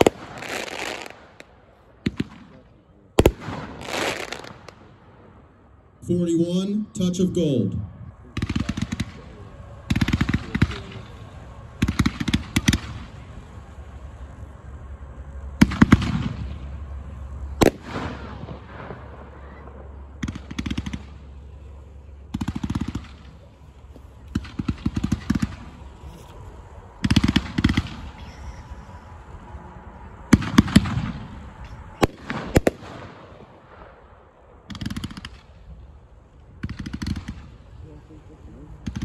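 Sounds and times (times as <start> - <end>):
fireworks popping: 0.0 - 5.0, 8.4 - 14.3, 15.6 - 29.4, 30.1 - 34.0, 34.6 - 39.0
firework bang: 17.5 - 29.0, 30.2 - 35.7.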